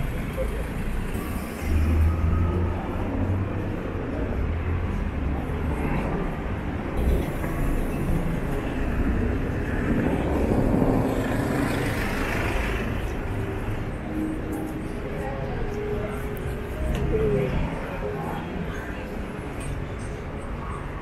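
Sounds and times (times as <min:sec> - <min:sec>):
street traffic rumble: 0:00.0 - 0:21.0
vehicle passing: 0:07.0 - 0:15.0.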